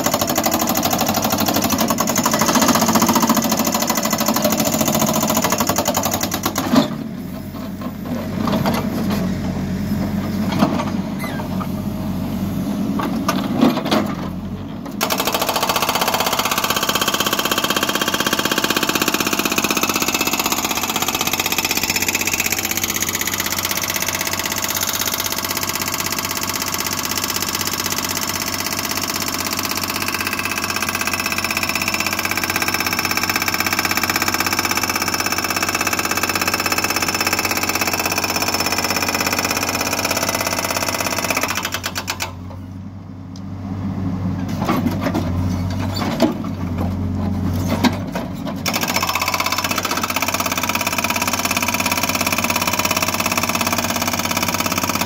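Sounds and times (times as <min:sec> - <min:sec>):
hydraulic breaker hammering rock: 0:00.0 - 0:07.0, 0:15.0 - 0:42.5, 0:48.6 - 0:55.0
diesel engine running: 0:00.0 - 0:55.0.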